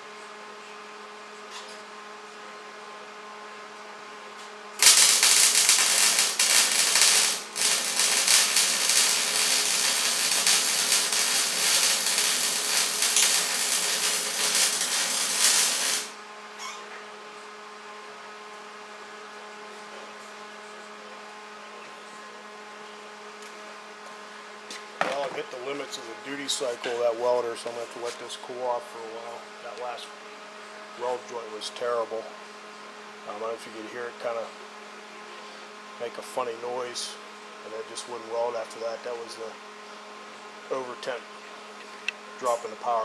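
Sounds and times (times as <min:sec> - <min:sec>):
arc welding crackling sizzle: 0:04.8 - 0:16.2.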